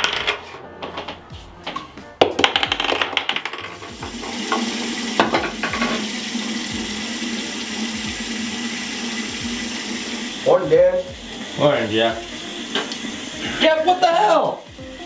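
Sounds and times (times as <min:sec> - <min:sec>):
water splashing into sink basin: 0:03.7 - 0:14.8.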